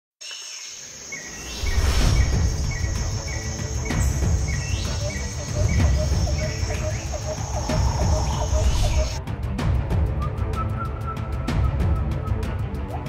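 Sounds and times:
bird chirps: 0.2s - 9.2s
high insect trill: 0.2s - 9.2s
brief whooshes: 1.3s - 4.0s
deep drum-like rumble: 1.6s - 10.3s.

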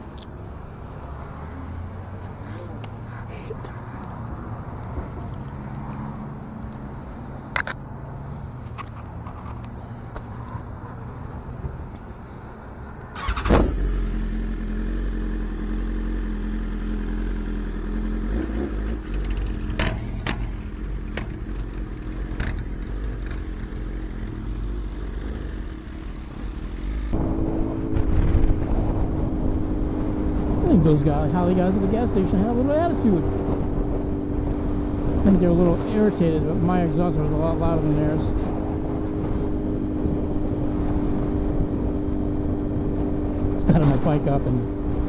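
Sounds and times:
motorcycle revving: 13.2s - 45.0s
sharp clicks: 19.0s - 23.4s
motorcycle engine idling loudly: 19.0s - 26.8s.

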